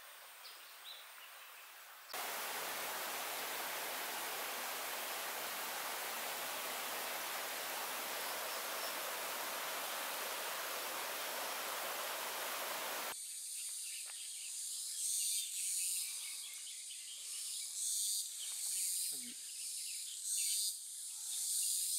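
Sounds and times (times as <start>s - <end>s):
insects trilling: 2.2s - 13.1s
stream water rushing: 2.2s - 13.2s.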